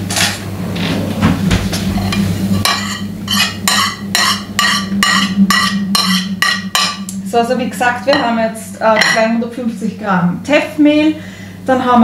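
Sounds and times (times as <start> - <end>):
low hum: 0.0 - 10.5
metal spoon scraping plate: 1.9 - 7.0.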